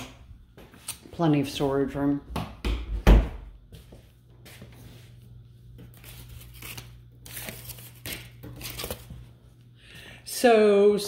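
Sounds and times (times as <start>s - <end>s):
footsteps on tile floor: 0.0s - 1.4s, 2.4s - 6.1s.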